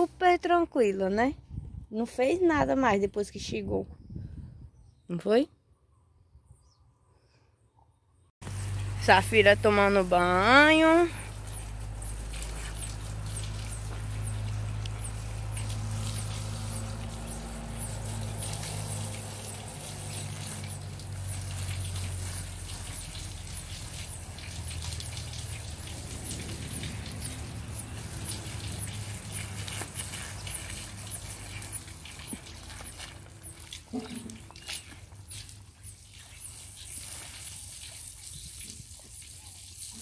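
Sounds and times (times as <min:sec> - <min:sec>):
hose water spraying and splattering: 0:08.4 - 0:40.0.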